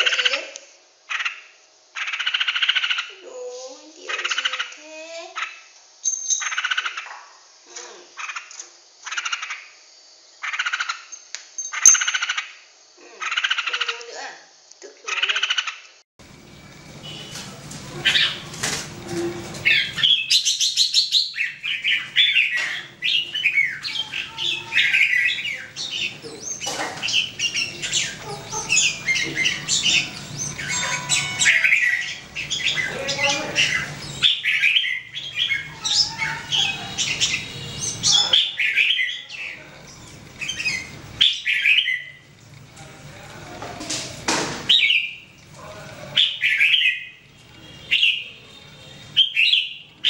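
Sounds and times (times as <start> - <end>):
bird singing chattering whistles: 18.0 - 42.3, 44.7 - 45.4, 46.2 - 50.0.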